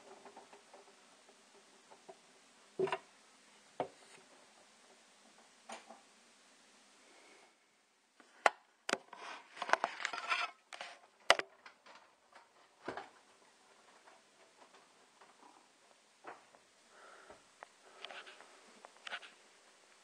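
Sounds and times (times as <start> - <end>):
clicks and rattles: 0.0 - 3.1, 8.9 - 16.7
objects knocking: 0.0 - 3.1.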